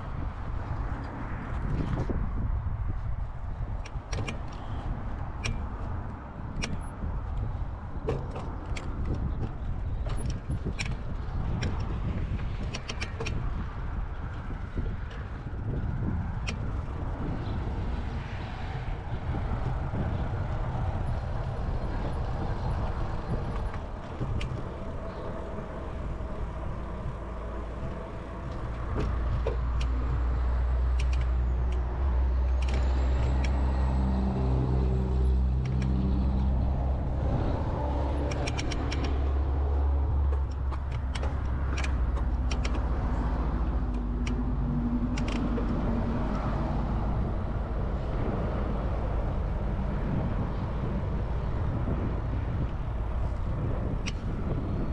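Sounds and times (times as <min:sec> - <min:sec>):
wind rumble: 0:00.0 - 0:54.9
rattles and clicks: 0:03.8 - 0:13.7, 0:20.7 - 0:34.6, 0:35.5 - 0:47.3.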